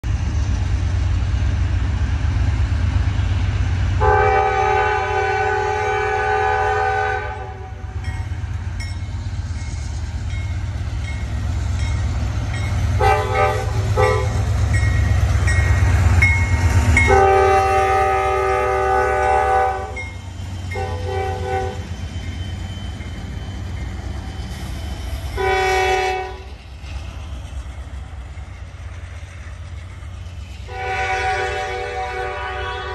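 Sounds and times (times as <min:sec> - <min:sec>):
diesel locomotive rumble: 0:00.0 - 0:32.9
locomotive horn blasts: 0:04.0 - 0:07.9, 0:13.0 - 0:14.4, 0:17.0 - 0:20.0, 0:20.7 - 0:21.9, 0:25.4 - 0:26.5, 0:30.7 - 0:32.9.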